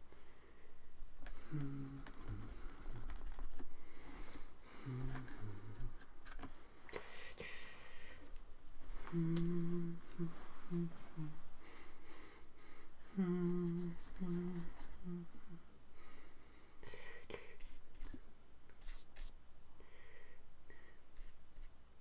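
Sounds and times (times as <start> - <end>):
man humming: 1.3 - 3.0, 4.8 - 6.0, 9.1 - 11.5, 13.1 - 15.7.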